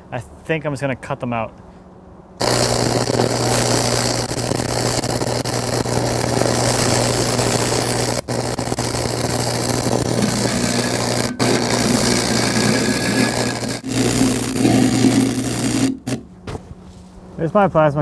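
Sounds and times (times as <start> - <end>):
steady low hum: 1.5 - 18.0
welding arc crackling and hissing: 2.4 - 16.3.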